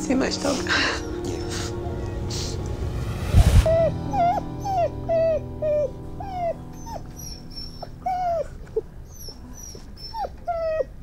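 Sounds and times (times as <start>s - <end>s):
puppy whimpering: 3.7s - 11.0s.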